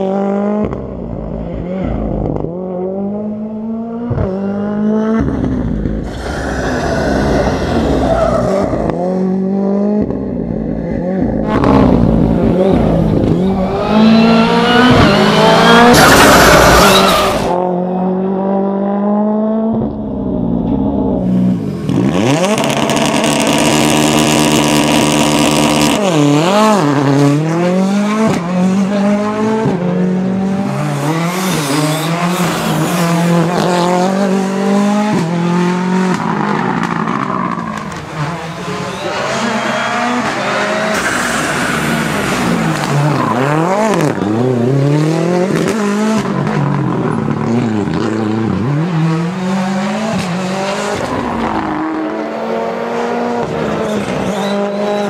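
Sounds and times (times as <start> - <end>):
rally car engines revving: 0.0 - 55.0
loud engine burst: 39.1 - 44.0.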